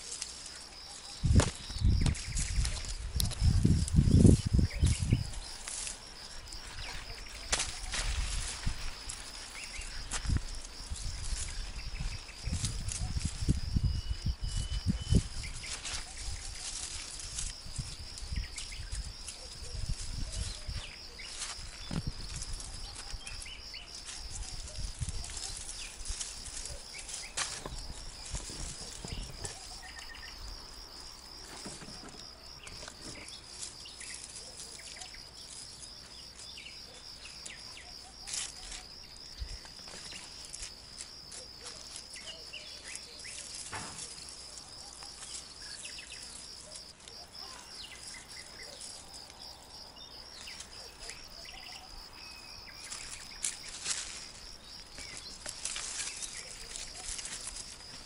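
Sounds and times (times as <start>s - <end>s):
insects trilling: 0.0s - 58.0s
plants rustling and clicking: 0.0s - 58.0s
faint bird chirps: 13.8s - 17.0s.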